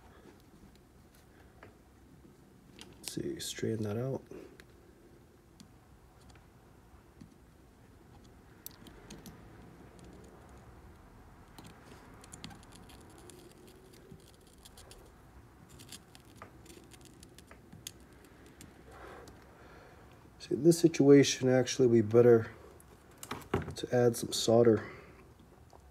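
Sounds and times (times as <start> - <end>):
flux crackling under soldering iron: 10.8 - 19.5.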